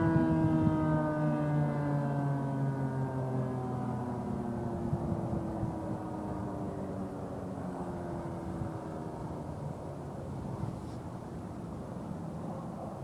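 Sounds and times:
rotating siren winding down: 0:00.0 - 0:09.4.

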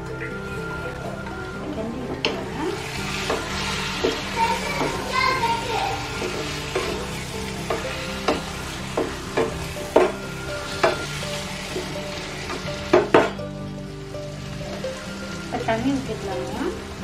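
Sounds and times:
food sizzling in a pan: 0:00.0 - 0:17.0
wooden spatula knocking pan: 0:07.7 - 0:10.2.

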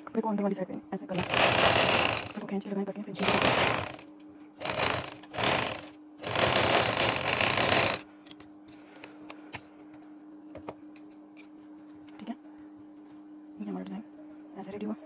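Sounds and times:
sewing machine stitching: 0:01.1 - 0:02.4, 0:03.2 - 0:04.0, 0:04.6 - 0:08.0.

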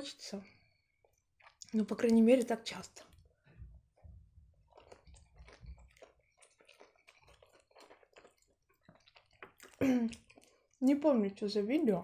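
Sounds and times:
wet chewing sounds: 0:00.6 - 0:11.0.

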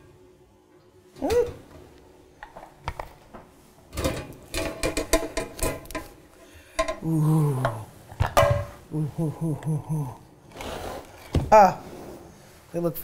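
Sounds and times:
metal pan clattering on wire rack: 0:04.0 - 0:06.1.

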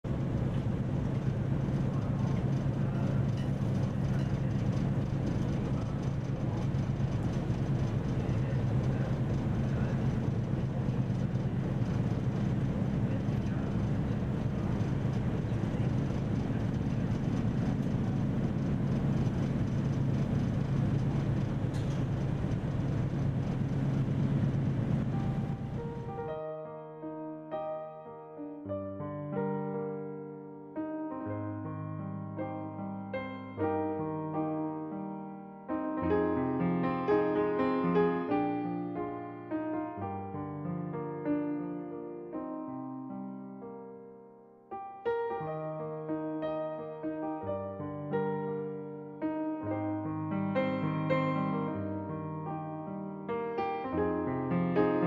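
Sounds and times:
ferry engines humming: 0:00.1 - 0:26.3.

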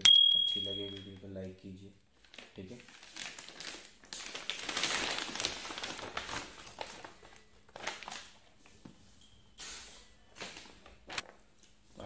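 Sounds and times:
packaging crinkling: 0:02.2 - 0:08.6, 0:10.3 - 0:11.4.

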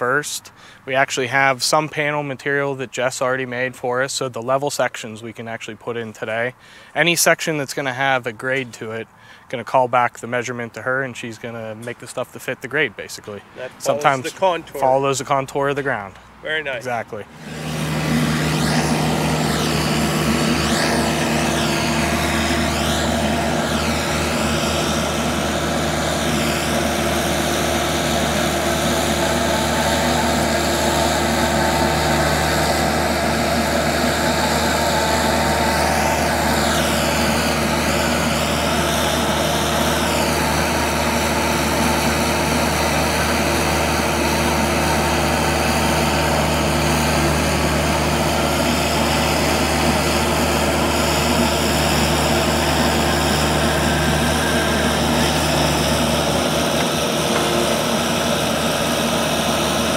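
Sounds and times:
engine running under load: 0:17.2 - 0:59.9
hydraulic whine: 0:17.2 - 0:59.9.

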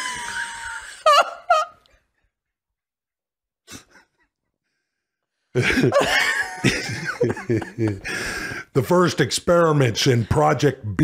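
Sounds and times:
man coughing: 0:05.6 - 0:07.4
man laughing: 0:05.6 - 0:08.6.

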